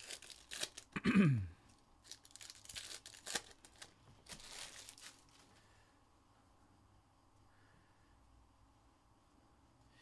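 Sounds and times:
foil wrappers tearing and crinkling: 0.0s - 1.0s, 2.0s - 5.5s.

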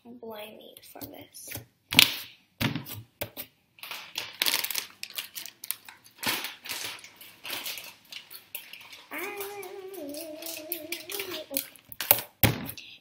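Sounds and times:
slime squishing and crinkling: 3.8s - 12.7s.

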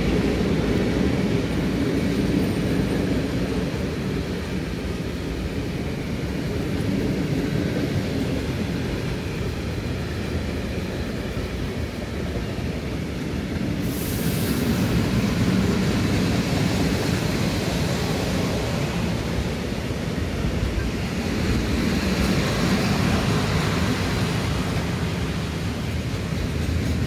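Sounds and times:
train wheels rumbling on rails: 0.0s - 27.0s
hiss: 2.5s - 27.0s.

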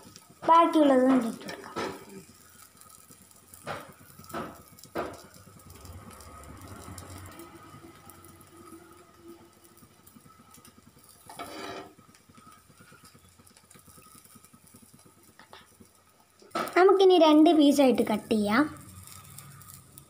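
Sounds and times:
spatula knocking on griddle: 0.4s - 2.0s, 3.6s - 5.3s
spatula scraping griddle: 0.6s - 5.3s, 10.5s - 13.1s
low engine-like rumble: 5.5s - 10.1s.

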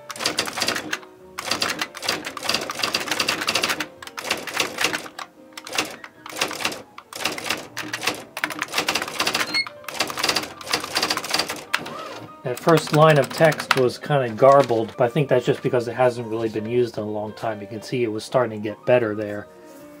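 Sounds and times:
typewriter print mechanism clatter: 0.0s - 15.6s
typewriter keys clicking: 0.0s - 15.7s.

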